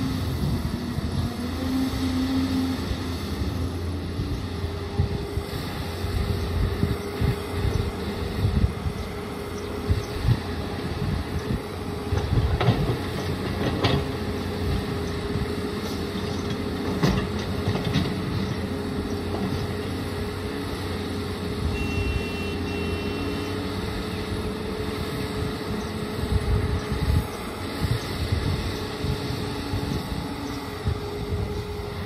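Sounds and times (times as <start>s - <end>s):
excavator diesel engine running: 0.0s - 32.0s
short high beeps: 21.7s - 23.4s.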